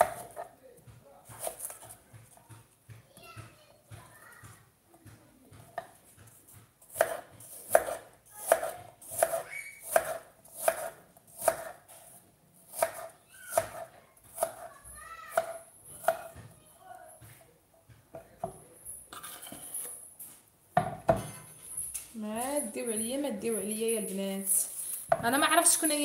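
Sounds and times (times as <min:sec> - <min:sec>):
knife chopping on wooden board: 0:00.0 - 0:00.5, 0:01.2 - 0:02.6, 0:05.6 - 0:12.1, 0:12.7 - 0:14.7, 0:15.3 - 0:16.5.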